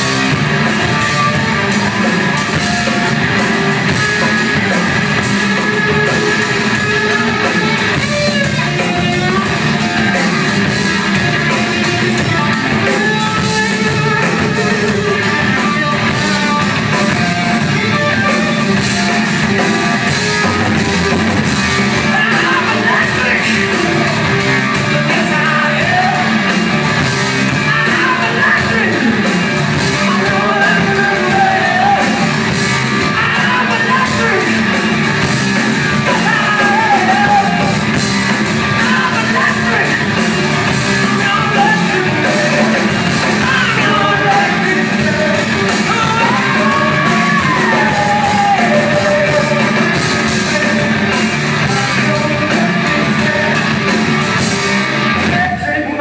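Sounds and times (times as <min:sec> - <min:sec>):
hard rock band playing live: 0:00.0 - 0:56.0
male singer wailing: 0:22.0 - 0:26.4, 0:27.5 - 0:32.4, 0:33.0 - 0:34.9, 0:36.0 - 0:37.9, 0:38.7 - 0:40.2, 0:41.1 - 0:53.9.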